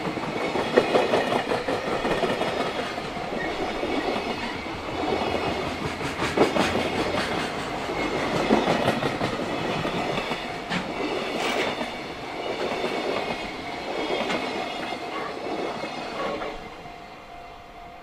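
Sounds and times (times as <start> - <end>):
train wheels clattering over rail joints: 0.0 - 16.6.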